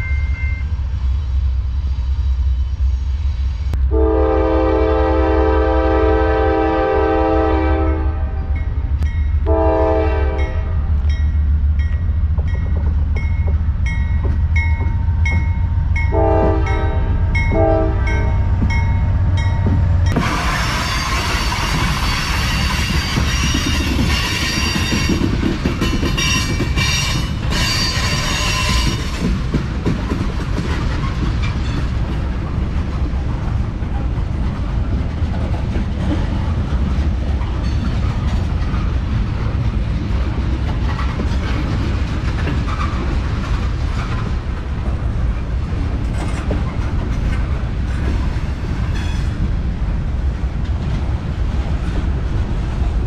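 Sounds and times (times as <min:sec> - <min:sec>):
train rumbling: 0:00.0 - 0:53.0
wheels clacking over rails: 0:11.2 - 0:53.0.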